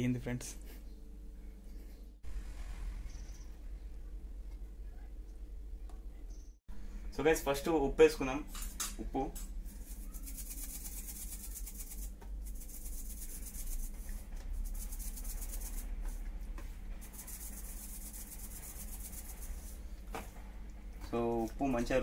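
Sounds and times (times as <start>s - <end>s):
salt rattling in shaker: 9.7s - 16.3s, 17.0s - 19.8s.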